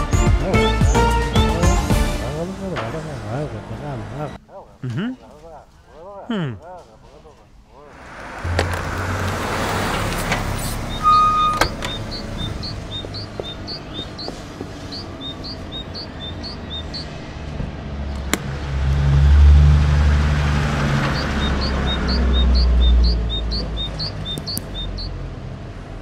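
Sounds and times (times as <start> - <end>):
small birds chirping: 0.0 - 2.5, 9.9 - 17.2, 20.4 - 25.2
vehicle rumble: 0.0 - 5.8, 7.8 - 26.0
sharp clicks: 23.6 - 24.8.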